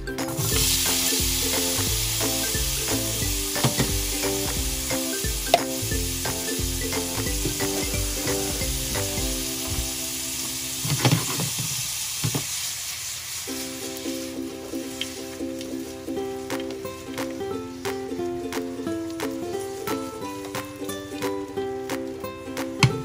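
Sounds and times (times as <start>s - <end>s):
background music: 0.0s - 10.8s, 13.5s - 23.0s
carrots sizzling in frying pan: 0.3s - 17.9s.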